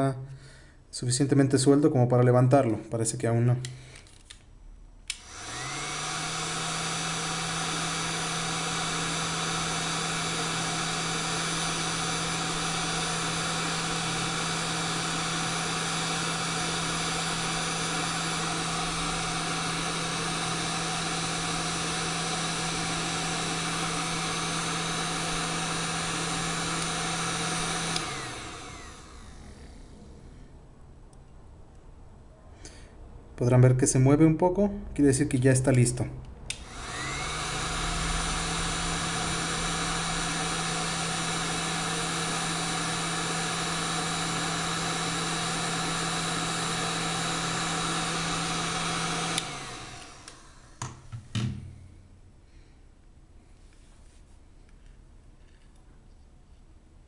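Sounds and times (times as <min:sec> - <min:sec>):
heat gun fan blowing hum: 0:00.0 - 0:33.4, 0:34.0 - 0:53.3
heat gun switch click: 0:36.5 - 0:36.7, 0:49.3 - 0:49.6.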